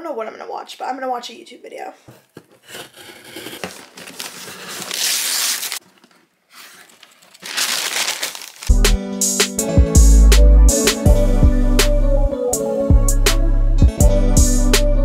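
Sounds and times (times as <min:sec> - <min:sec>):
paper packaging crinkling: 0:02.6 - 0:09.0
music: 0:08.7 - 0:15.0.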